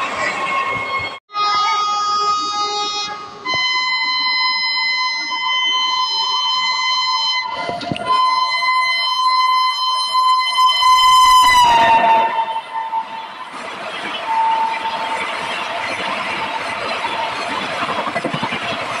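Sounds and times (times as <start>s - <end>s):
locomotive air horn blast: 0.7s - 15.8s
rush of noise: 10.6s - 19.0s.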